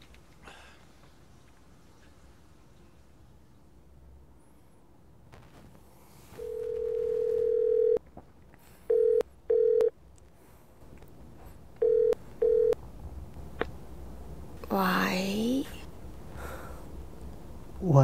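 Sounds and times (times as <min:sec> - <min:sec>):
steady telephone tone: 0:06.4 - 0:08.0, 0:08.9 - 0:09.9, 0:11.8 - 0:12.8.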